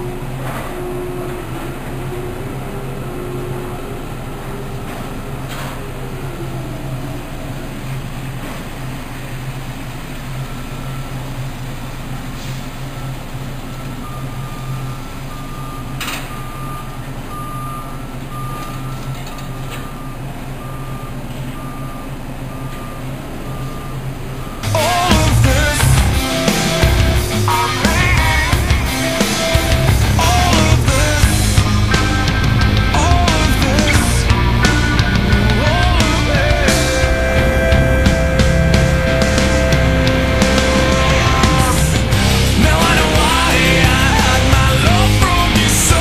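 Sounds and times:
crane machinery hum: 0:00.0 - 0:46.0
electronic warning beeps: 0:10.4 - 0:11.5, 0:12.6 - 0:44.9.

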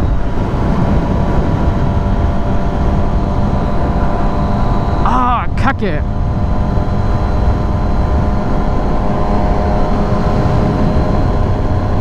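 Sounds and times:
wind noise on microphone: 0:00.0 - 0:05.1
motorcycle engine at high revs: 0:00.0 - 0:12.0.

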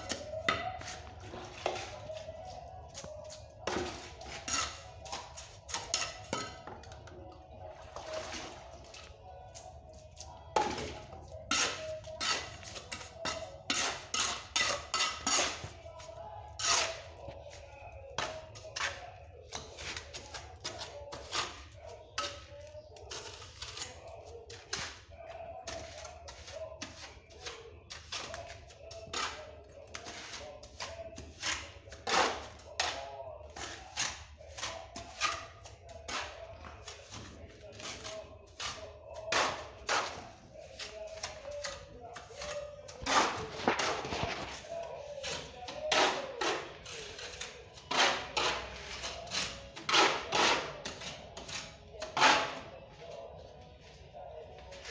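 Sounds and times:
trowel scraping mortar: 0:00.0 - 0:02.3, 0:03.6 - 0:06.6, 0:10.6 - 0:15.8, 0:16.5 - 0:17.6, 0:18.2 - 0:52.7.

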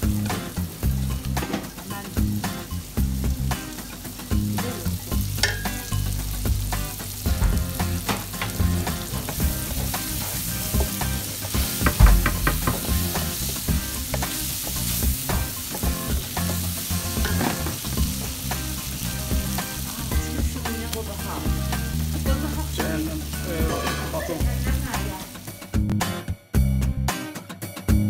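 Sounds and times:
vegetables sizzling in a frying pan: 0:00.0 - 0:25.7
wooden spatula scraping a pan: 0:23.5 - 0:24.4.

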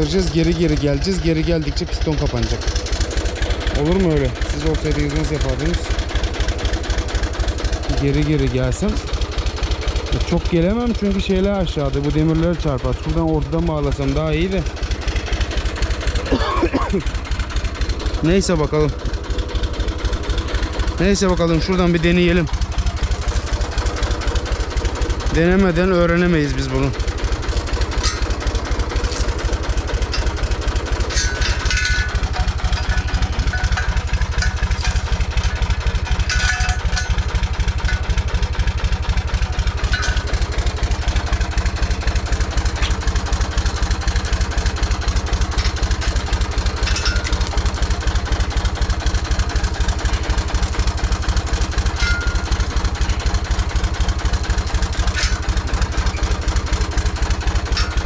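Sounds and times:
tractor engine idling: 0:00.0 - 0:58.0
short clinks and knocks: 0:21.5 - 0:58.0.

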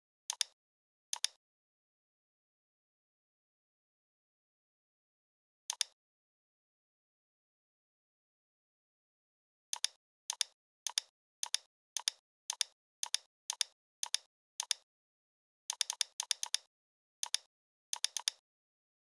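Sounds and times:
computer mouse clicking: 0:00.3 - 0:00.6, 0:01.2 - 0:01.4, 0:05.7 - 0:06.0, 0:09.7 - 0:14.8, 0:15.7 - 0:18.4.

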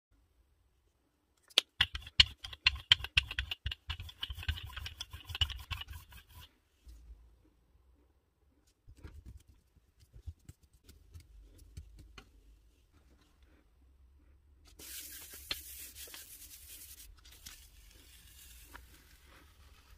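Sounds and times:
taps and rubbing: 0:01.4 - 0:06.5, 0:08.9 - 0:12.4.

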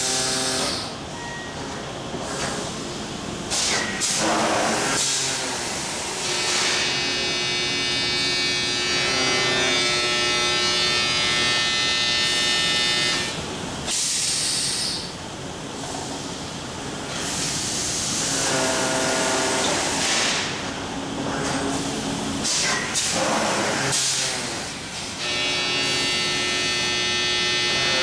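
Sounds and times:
steady high machine whine: 0:05.7 - 0:13.9, 0:25.0 - 0:28.0.

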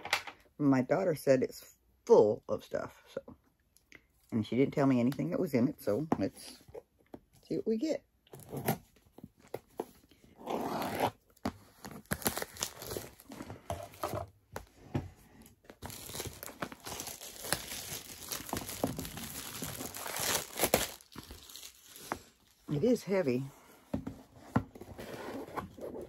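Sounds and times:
cardboard box ripping: 0:11.8 - 0:13.3, 0:15.8 - 0:22.0
plastic wrapping crinkling: 0:11.8 - 0:14.1, 0:15.6 - 0:23.0.

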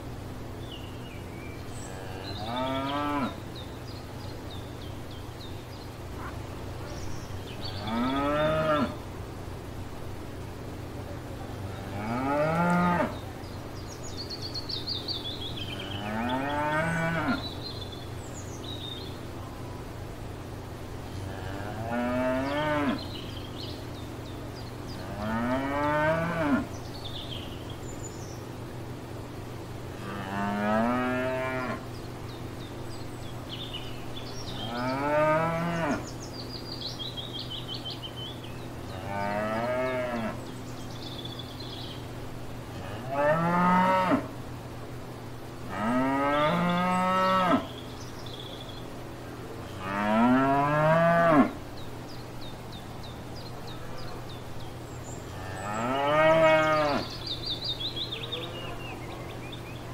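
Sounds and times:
cows mooing: 0:01.8 - 0:03.4, 0:07.7 - 0:09.0, 0:11.6 - 0:13.2, 0:21.2 - 0:23.1, 0:25.0 - 0:26.7, 0:30.0 - 0:31.8, 0:34.5 - 0:36.0, 0:38.9 - 0:40.4, 0:42.8 - 0:44.3, 0:45.7 - 0:47.7, 0:49.7 - 0:51.6, 0:55.3 - 0:57.2.

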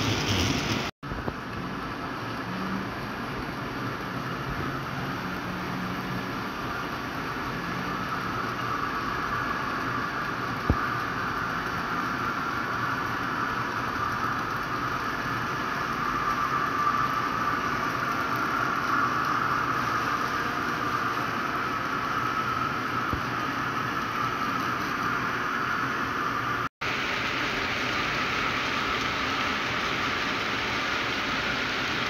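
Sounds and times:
model train wheels whirring: 0:00.0 - 0:00.9.

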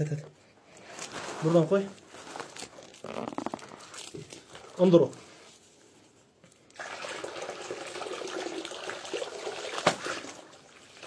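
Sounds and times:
water pouring into plastic basin: 0:06.8 - 0:11.0.

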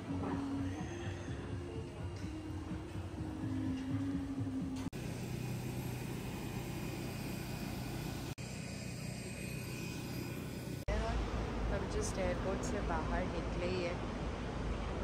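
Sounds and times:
vehicle engine hum: 0:03.1 - 0:15.0.

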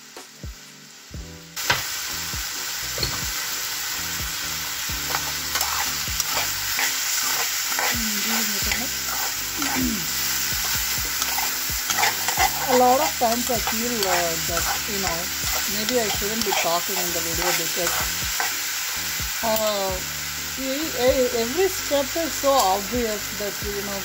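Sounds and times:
food sizzling in hot oil: 0:00.0 - 0:24.0
spoon scraping a pan: 0:05.0 - 0:19.8.

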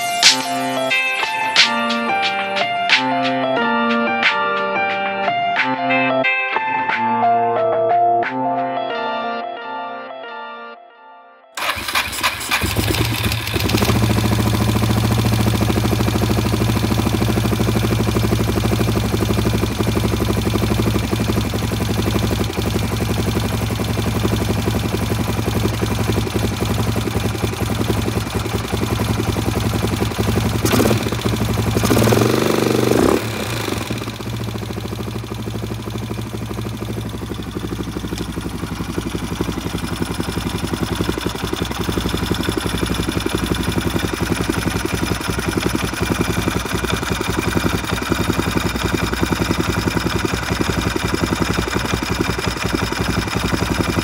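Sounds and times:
engine idling and revving: 0:11.6 - 0:54.0.

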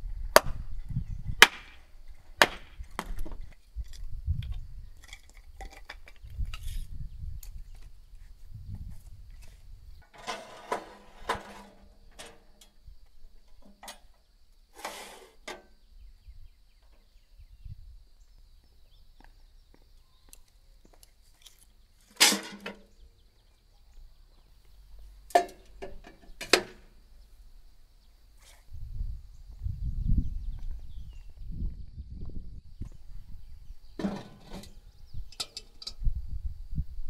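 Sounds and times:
handling clatters and knocks: 0:34.0 - 0:34.8.

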